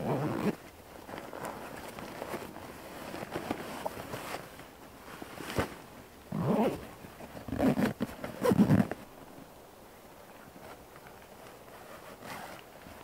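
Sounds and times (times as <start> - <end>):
nylon sack rustling: 0.0 - 9.4, 11.4 - 13.0
strap rasping through buckle: 7.5 - 8.9.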